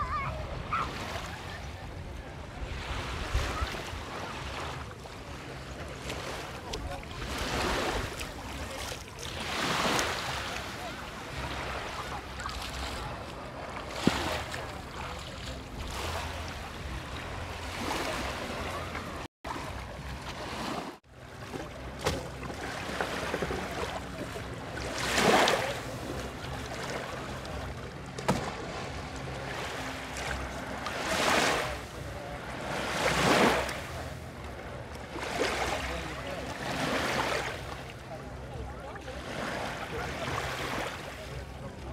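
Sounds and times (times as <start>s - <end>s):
gentle waves washing on sand: 0.0s - 41.9s.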